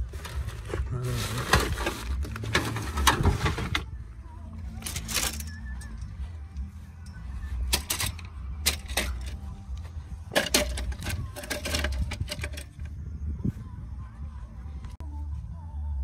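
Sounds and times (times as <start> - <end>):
steady low rumble: 12.0 - 16.0.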